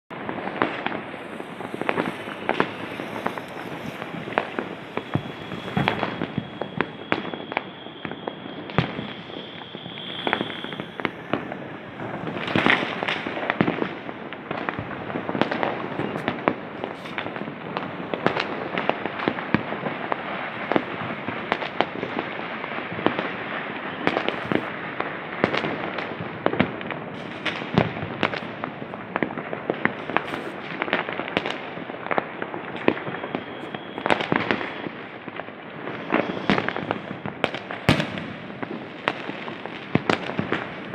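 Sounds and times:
firecrackers crackling: 0:00.1 - 0:40.9
fireworks bangs: 0:00.1 - 0:40.9
high steady whistle: 0:00.9 - 0:24.7, 0:32.6 - 0:38.6.

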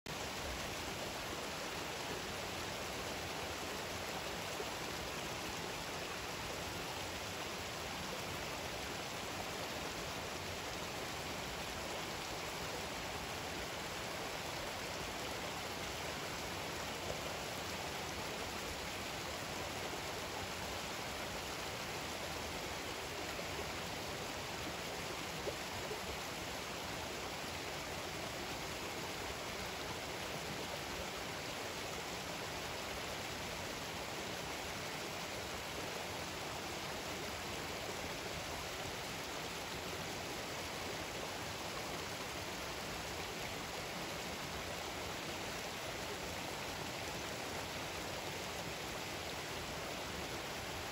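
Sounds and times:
creek running over rocks: 0:00.1 - 0:50.9.

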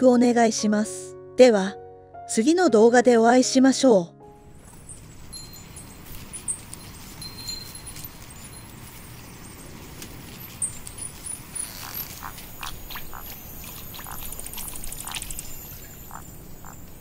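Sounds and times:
faint high chirping: 0:04.5 - 0:17.0
frogs croaking: 0:08.2 - 0:17.0.

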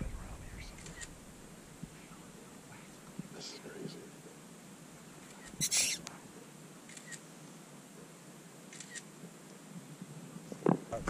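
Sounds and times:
hushed whispering: 0:00.0 - 0:01.1, 0:01.8 - 0:04.2, 0:05.2 - 0:06.3.

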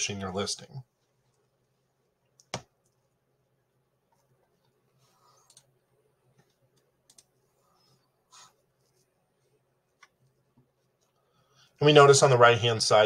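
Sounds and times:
computer mouse clicks: 0:02.4 - 0:03.1, 0:05.4 - 0:05.8, 0:06.4 - 0:07.4.

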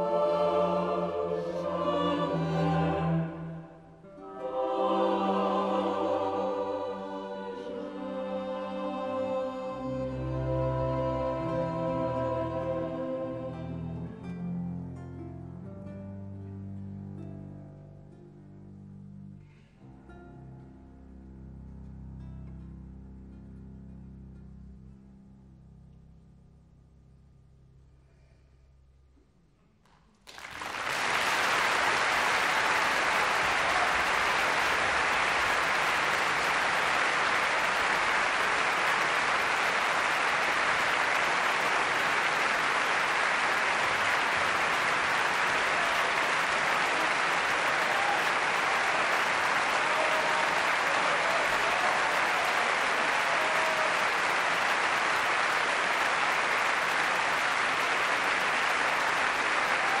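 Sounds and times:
audience applause: 0:30.2 - 1:00.0.

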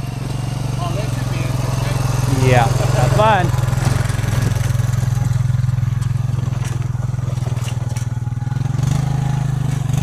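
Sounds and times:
atv engine running: 0:00.0 - 0:10.0
light rattles and clatters: 0:02.4 - 0:08.4.

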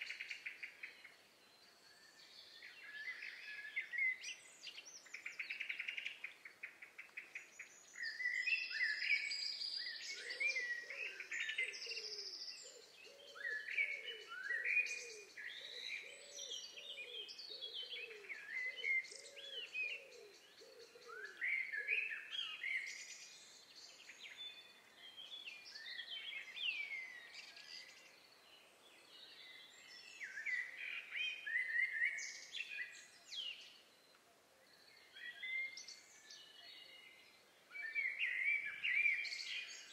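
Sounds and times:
birds chirping and whistling: 0:34.7 - 0:39.9.

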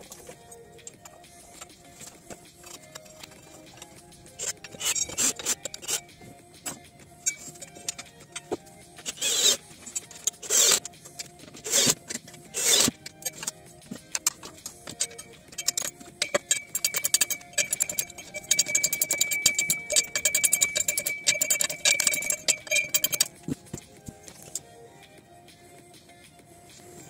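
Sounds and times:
background music: 0:00.0 - 0:27.0
ratchet wrench clicking: 0:00.8 - 0:23.4
cordless drill spinning: 0:07.3 - 0:23.3.

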